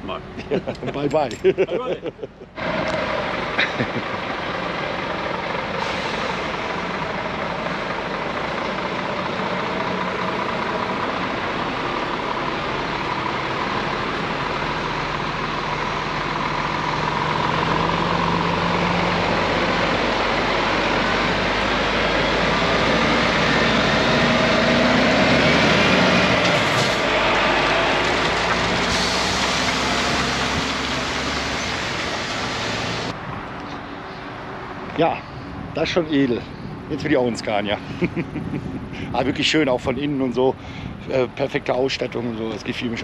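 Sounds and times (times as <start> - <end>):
truck diesel engine pulling away: 2.5 - 33.2.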